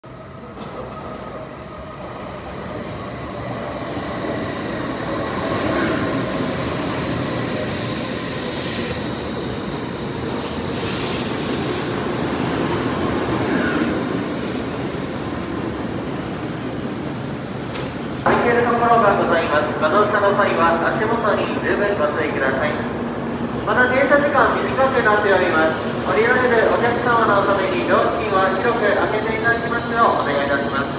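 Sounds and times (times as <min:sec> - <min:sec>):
train wheels rumbling on rail: 0:00.0 - 0:20.0
faint high train whine: 0:00.0 - 0:30.9
hiss: 0:10.3 - 0:12.0, 0:23.2 - 0:29.8.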